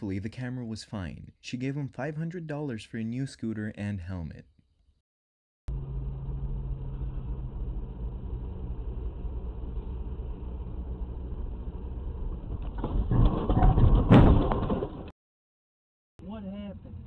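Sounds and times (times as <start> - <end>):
car engine and road hum: 5.7 - 13.1.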